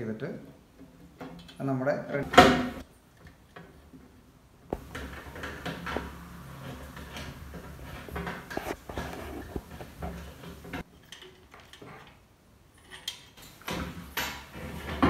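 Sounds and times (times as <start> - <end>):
clicks and knocks of parts: 4.7 - 12.2, 12.8 - 15.0.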